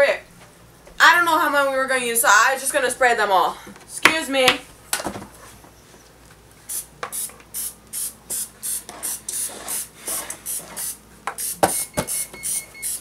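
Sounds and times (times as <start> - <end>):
cooking spray hissing in bursts: 6.7 - 11.6.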